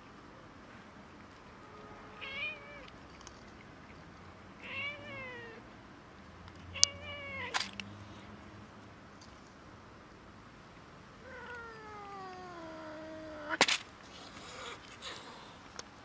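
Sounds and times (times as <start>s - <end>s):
cat meowing: 1.6s - 2.9s, 4.6s - 5.6s, 6.7s - 7.6s, 11.2s - 13.6s.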